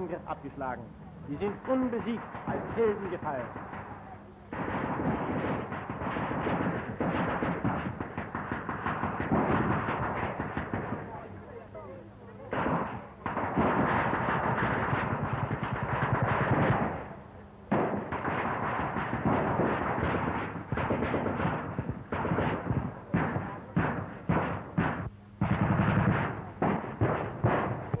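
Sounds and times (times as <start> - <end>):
machine-gun and rifle fire: 1.3 - 11.6, 12.4 - 28.0.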